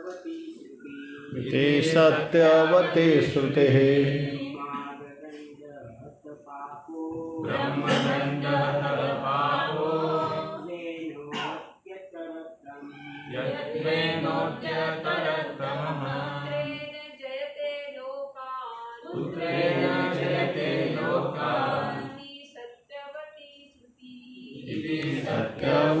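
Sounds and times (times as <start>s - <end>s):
group chanting in unison: 0.8s - 4.9s, 6.9s - 11.5s, 12.8s - 16.9s, 19.0s - 22.2s, 24.4s - 26.0s.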